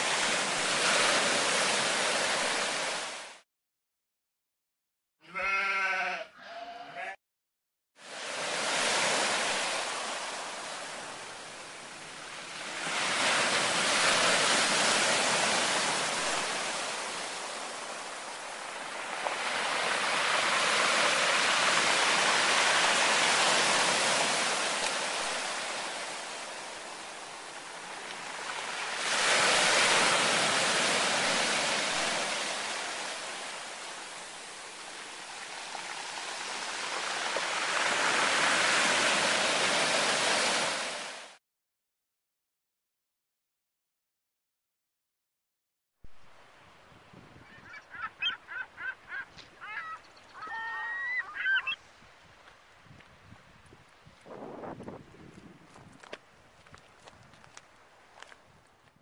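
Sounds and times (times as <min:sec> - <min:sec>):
surf breaking on stony beach: 0:00.0 - 0:03.3, 0:08.0 - 0:41.4.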